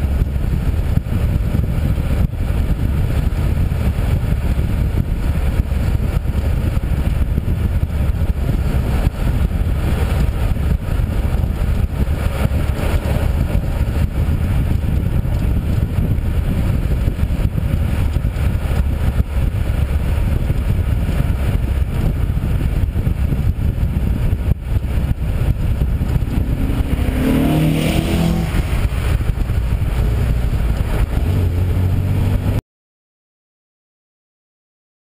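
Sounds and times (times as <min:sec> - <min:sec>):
engine wind and tyre rumble: 0:00.0 - 0:32.6
engine revving: 0:01.9 - 0:15.7, 0:24.0 - 0:32.6.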